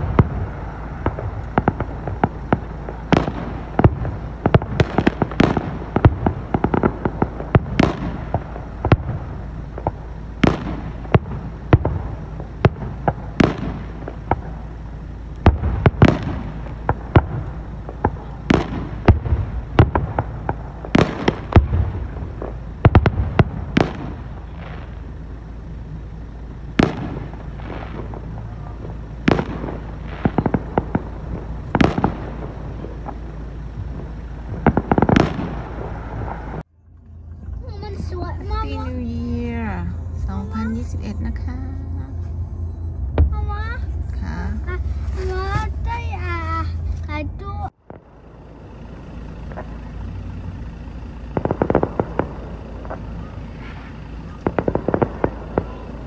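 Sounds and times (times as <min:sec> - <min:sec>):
fireworks bangs: 0:00.0 - 0:56.0
small firework pops: 0:01.0 - 0:14.6, 0:15.4 - 0:25.0, 0:26.8 - 0:33.3, 0:34.5 - 0:36.6, 0:51.3 - 0:56.0.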